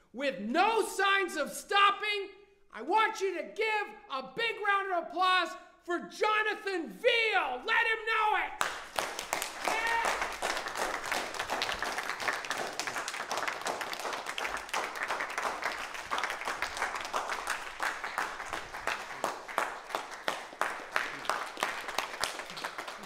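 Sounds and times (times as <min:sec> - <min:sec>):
audience applauding: 0:08.6 - 0:23.0.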